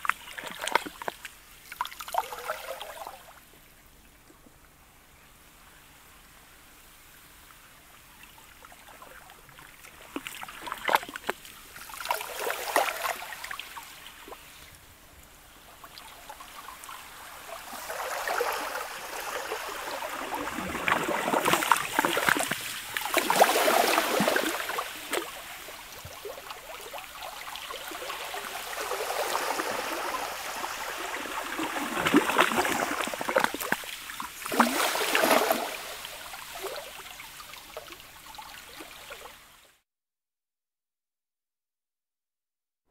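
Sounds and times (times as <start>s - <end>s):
slushy ice water lapping shore: 0.1s - 3.3s, 8.6s - 14.7s, 15.6s - 39.4s.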